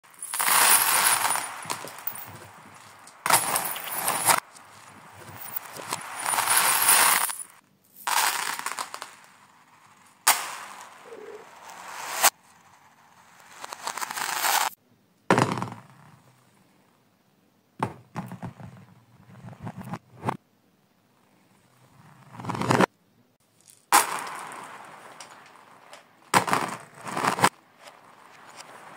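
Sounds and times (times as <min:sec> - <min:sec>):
plastic beads rattling on floor: 0:00.1 - 0:09.2, 0:23.5 - 0:27.9.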